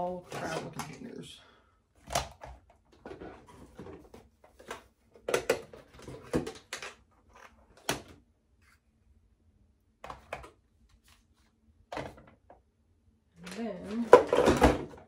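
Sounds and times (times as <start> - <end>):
plastic bottles clattering in a box: 0.3 - 1.0, 4.7 - 7.0, 13.4 - 15.0.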